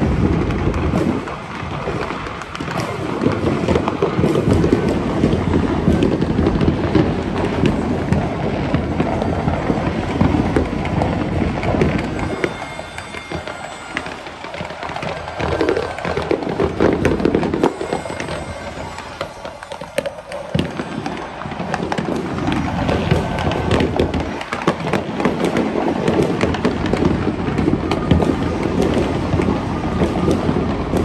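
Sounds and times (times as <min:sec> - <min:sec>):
fireworks and firecrackers crackling: 0:00.0 - 0:31.0.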